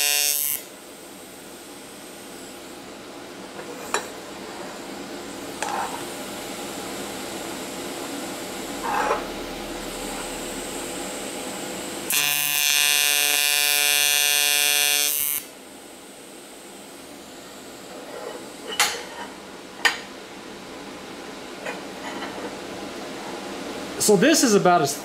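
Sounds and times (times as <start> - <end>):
welding arc buzz: 0.0 - 3.1, 4.1 - 19.1.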